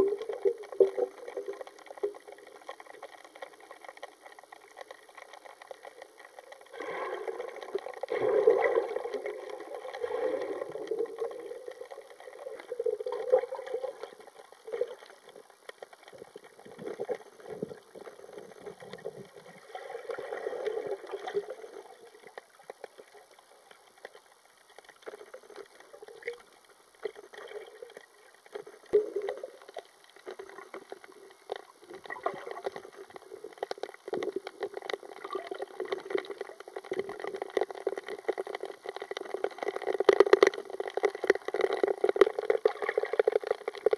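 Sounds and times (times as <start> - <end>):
muffled underwater gurgling: 0.0 - 43.9.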